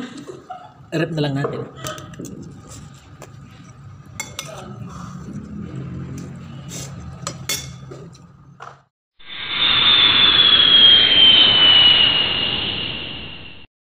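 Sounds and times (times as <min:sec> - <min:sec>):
whoosh with falling whistle: 0:09.2 - 0:13.7.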